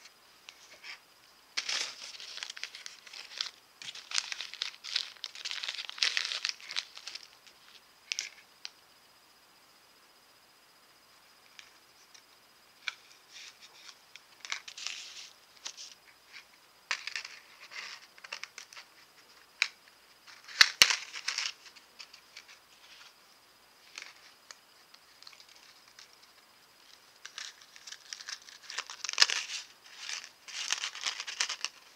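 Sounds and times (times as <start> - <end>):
crinkly metal handling noises: 1.6 - 7.4, 27.2 - 31.9.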